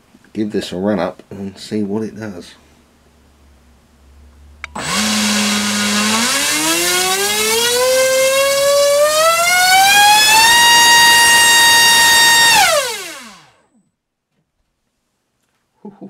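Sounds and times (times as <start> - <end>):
motor start click: 4.6 - 13.6
electric motor whine: 4.7 - 13.6.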